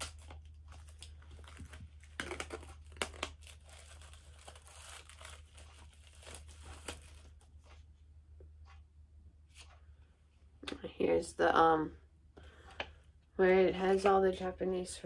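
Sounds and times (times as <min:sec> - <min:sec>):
cd packaging crinkling: 0:00.0 - 0:07.5.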